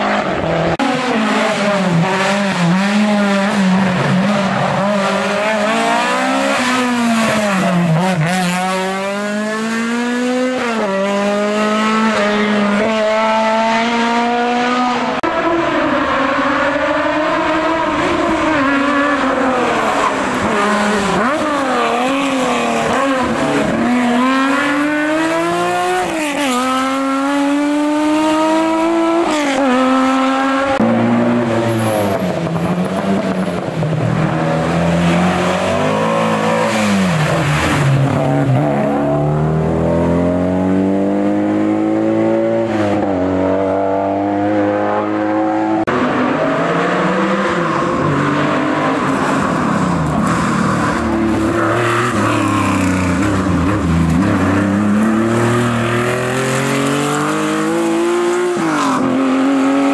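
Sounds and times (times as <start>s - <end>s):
rally car engine revving: 0.0s - 59.9s.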